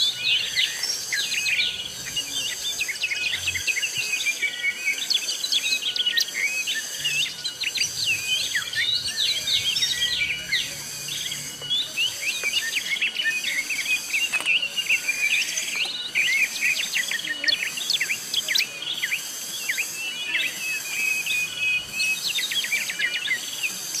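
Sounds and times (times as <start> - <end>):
birds chirping and whistling: 0.0 - 24.0
pulsing insect chorus: 0.0 - 24.0.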